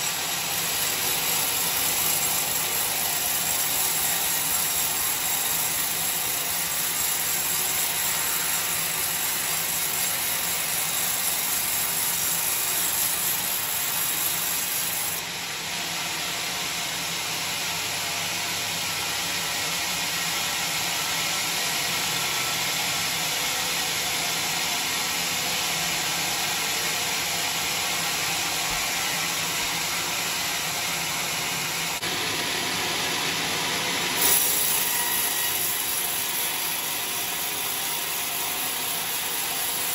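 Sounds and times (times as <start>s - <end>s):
band saw cutting wood: 0.0s - 15.6s, 25.9s - 39.9s.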